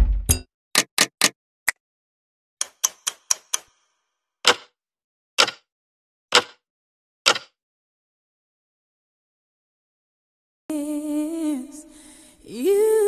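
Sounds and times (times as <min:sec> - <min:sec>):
sharp clicks: 0:05.4 - 0:05.6, 0:07.3 - 0:07.5.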